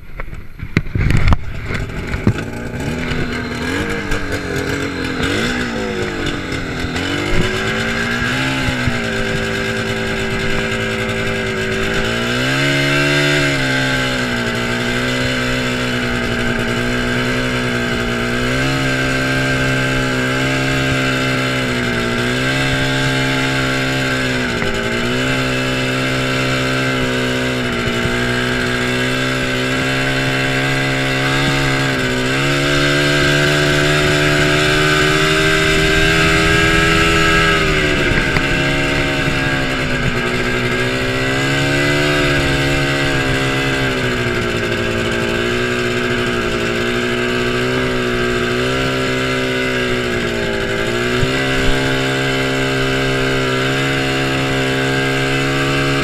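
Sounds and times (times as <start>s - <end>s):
snowmobile engine running: 0.0s - 56.0s.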